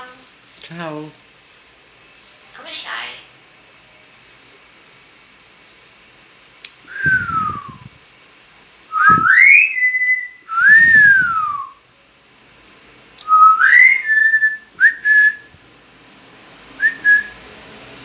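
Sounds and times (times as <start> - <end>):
myna bird whistling: 8.9 - 11.8, 13.2 - 15.5.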